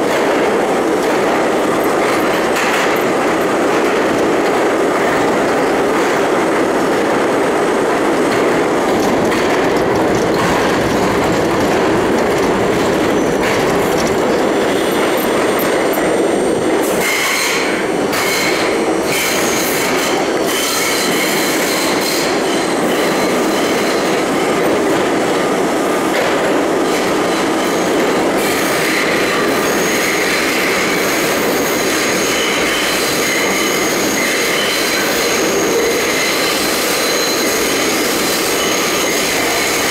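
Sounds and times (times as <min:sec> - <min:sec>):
train wheels rumbling on rail: 0:00.0 - 0:39.9
sharp clatters: 0:08.3 - 0:16.0
high wheel squeal: 0:08.8 - 0:24.4, 0:27.6 - 0:39.9.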